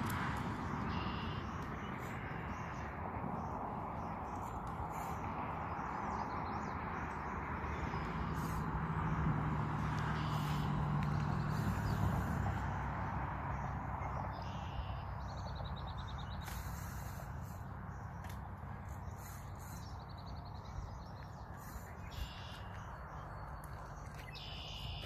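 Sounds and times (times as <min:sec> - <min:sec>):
outdoor background noise: 0:00.0 - 0:25.0
faint bird chirps: 0:14.4 - 0:17.0, 0:19.2 - 0:25.0.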